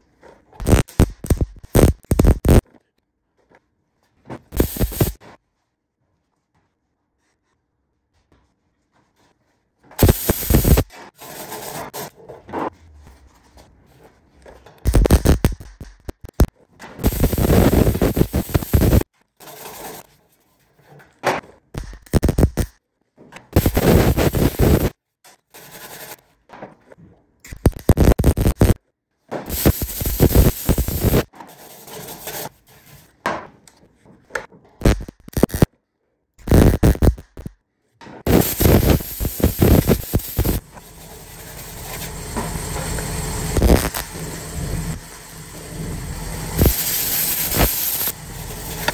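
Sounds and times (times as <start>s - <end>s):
welder crackling: 0.6s - 2.6s, 4.5s - 5.2s, 10.0s - 10.9s, 14.9s - 19.1s, 21.8s - 22.8s, 23.6s - 24.9s, 27.5s - 28.8s, 29.5s - 31.3s, 34.8s - 35.7s, 36.4s - 37.6s, 38.3s - 48.9s.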